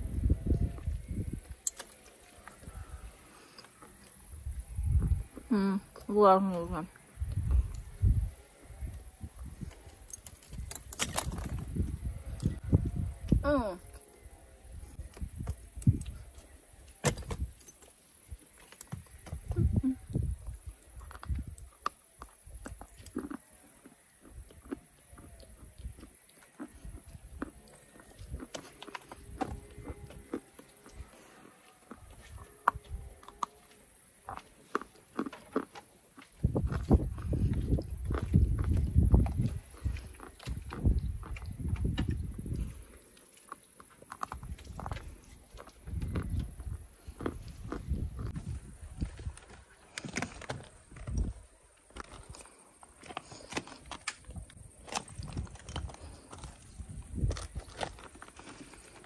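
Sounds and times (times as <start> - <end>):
stones clicking underfoot: 0.8 - 2.7, 9.6 - 12.6, 15.0 - 31.1, 34.2 - 59.0
chalk crunching while chewed: 20.1 - 41.6, 42.4 - 48.4.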